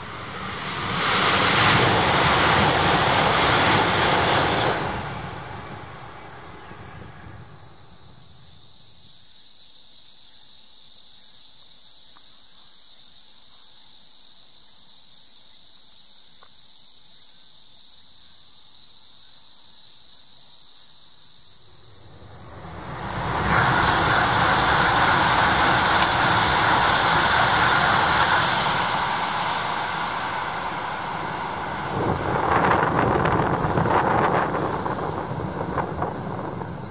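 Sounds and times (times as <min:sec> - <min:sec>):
loud rushing noise: 0:00.0 - 0:08.4, 0:21.9 - 0:36.9
insects buzzing: 0:00.0 - 0:36.9.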